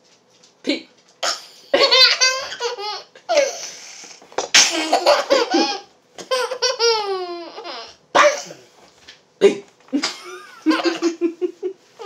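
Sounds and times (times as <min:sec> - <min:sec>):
toddler laughing hysterically: 0:01.8 - 0:03.6, 0:04.7 - 0:08.0, 0:10.3 - 0:11.6.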